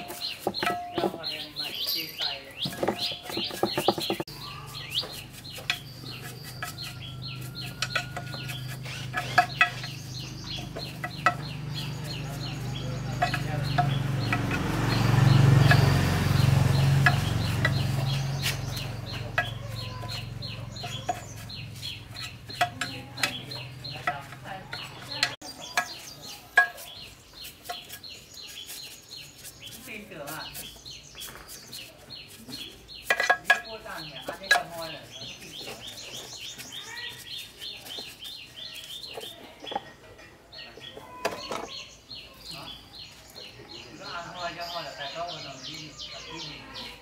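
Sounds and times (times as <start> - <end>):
chickens clucking: 0.0 - 28.2.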